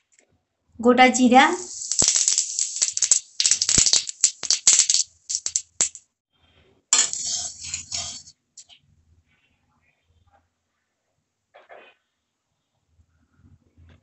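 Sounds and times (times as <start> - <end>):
seeds crackling in hot oil: 1.1 - 6.0, 7.0 - 8.3.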